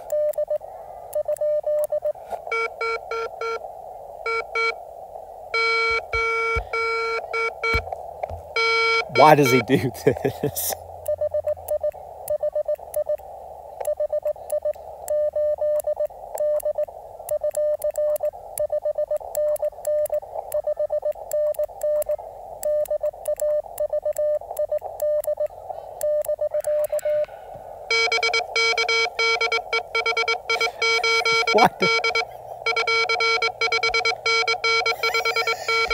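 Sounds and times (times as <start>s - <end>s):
radio static: 0.0s - 15.6s, 18.1s - 35.9s
morse code sidetone: 0.1s - 3.6s, 4.2s - 4.8s, 5.5s - 7.9s, 8.5s - 10.2s, 13.8s - 27.3s, 27.9s - 35.9s
morse code tone: 5.6s - 7.9s, 8.5s - 9.9s, 27.9s - 35.9s.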